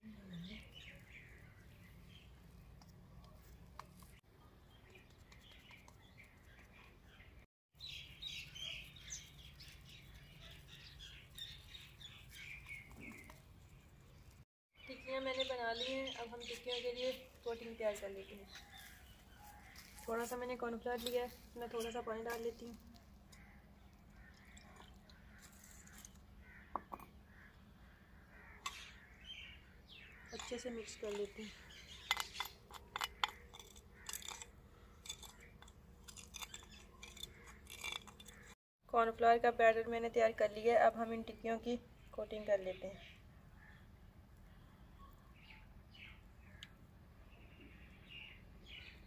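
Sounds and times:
small birds chirping: 0.0s - 38.6s, 40.3s - 49.0s
low steady background hum: 8.9s - 49.0s
mug knocking on clay bowl: 26.7s - 27.2s.

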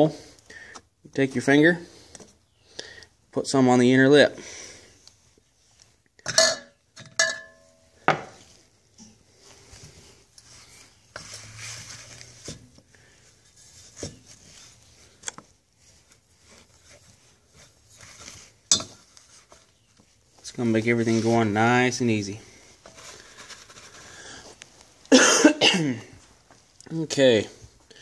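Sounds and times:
soft rubbing and handling: 4.5s - 6.2s, 7.9s - 25.1s, 26.0s - 28.0s
metal housing clinking on workbench: 6.3s - 7.7s.

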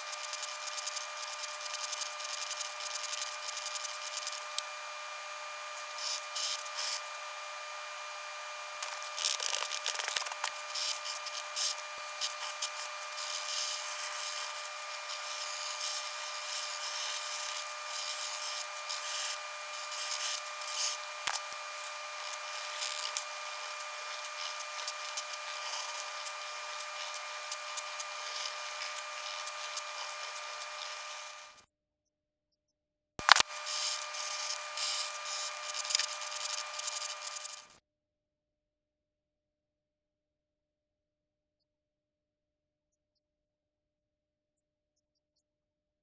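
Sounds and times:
pencil and marker scratching paper: 0.0s - 4.6s, 5.6s - 7.4s, 8.8s - 31.4s, 33.3s - 37.7s
steady hum: 0.0s - 31.6s, 33.2s - 37.7s.

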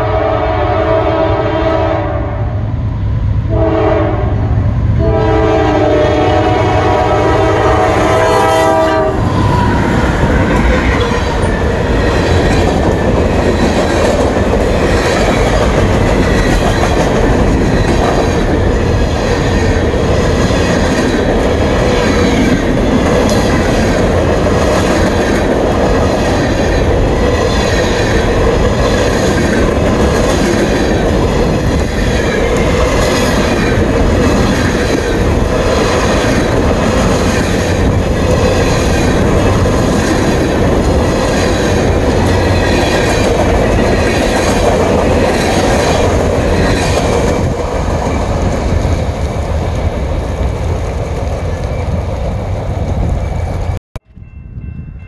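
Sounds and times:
locomotive horn: 0.0s - 2.6s, 3.5s - 11.4s
train cars rumbling: 0.0s - 55.0s.

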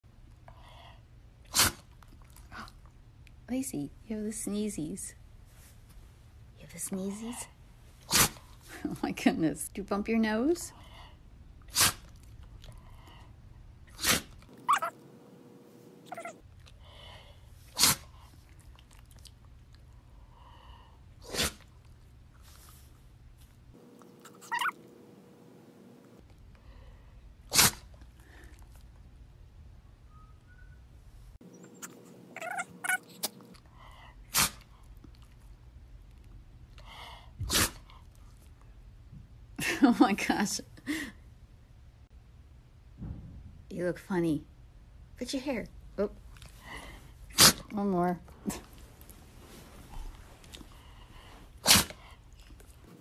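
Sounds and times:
dog sneezing: 1.5s - 1.9s, 8.0s - 8.6s, 11.7s - 12.2s, 13.9s - 15.0s, 17.7s - 18.2s, 21.2s - 21.7s, 24.0s - 25.1s, 27.5s - 28.0s, 34.3s - 34.6s, 37.4s - 37.9s, 47.3s - 47.7s, 51.6s - 52.2s.

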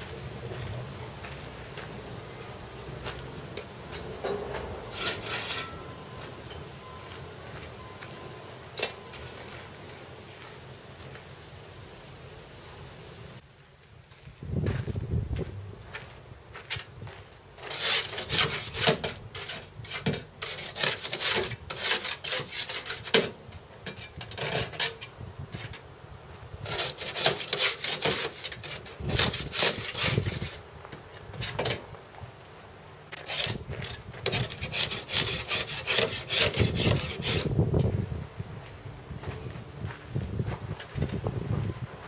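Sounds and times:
hull being scraped by hand: 4.9s - 5.7s, 17.6s - 25.8s, 26.6s - 30.6s, 33.1s - 37.6s.

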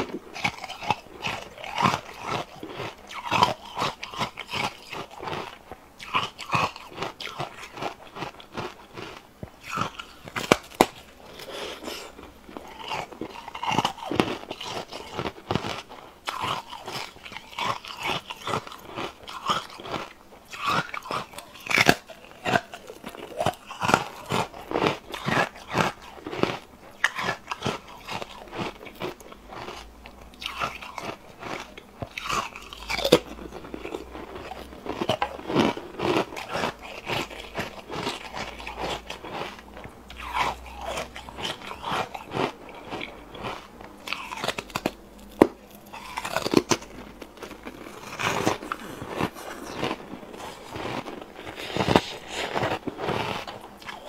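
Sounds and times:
ice crunching between teeth: 0.0s - 54.0s.

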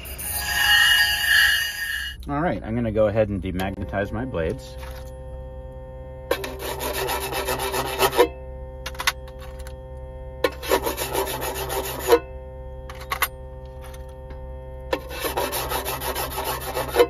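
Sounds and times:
demagnetizer humming: 0.0s - 17.0s
clipper blades rasping on metal plate: 14.9s - 17.0s.

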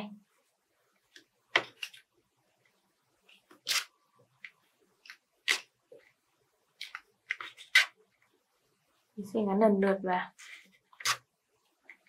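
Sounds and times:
plastic straws and paper crinkling: 6.8s - 8.3s, 10.4s - 12.0s.

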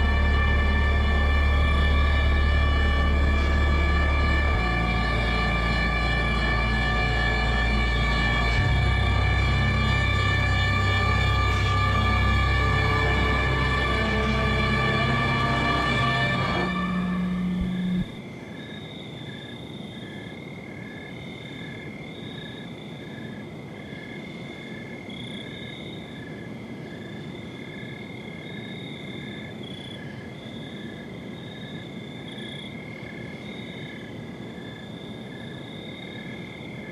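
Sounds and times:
background music: 0.0s - 18.2s
crickets chirping: 0.0s - 36.9s.

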